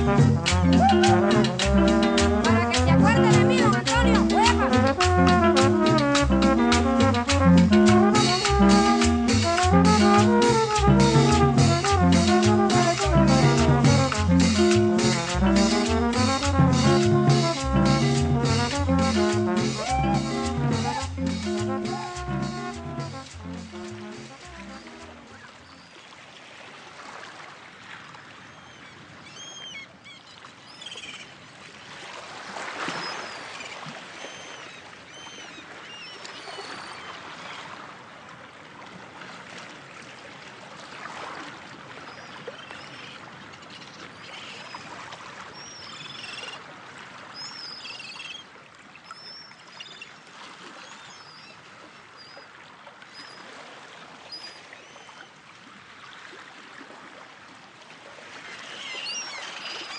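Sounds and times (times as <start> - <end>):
water rushing in swells: 0.0 - 2.4, 4.0 - 28.1, 31.6 - 34.8.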